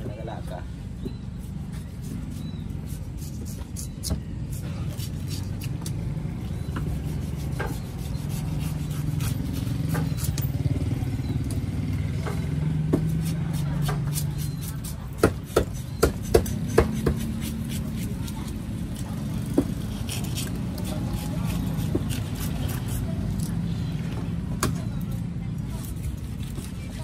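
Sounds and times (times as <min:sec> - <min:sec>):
knife chopping on wooden block: 0:12.8 - 0:18.4.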